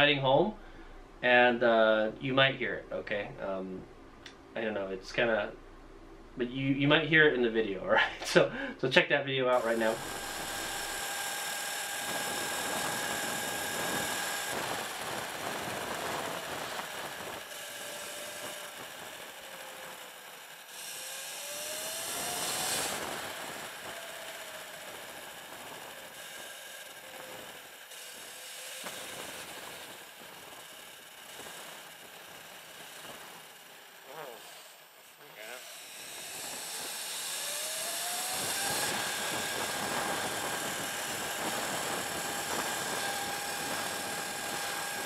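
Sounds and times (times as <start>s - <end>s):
electric dirt bike motor whining: 9.5s - 45.0s.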